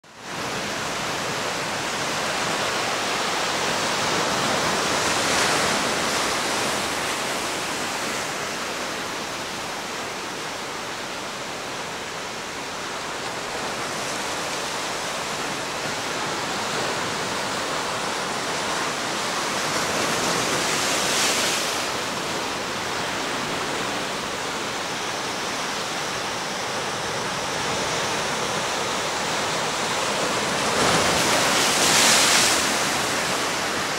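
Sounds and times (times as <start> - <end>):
surf breaking over rocks: 26.7 - 33.9.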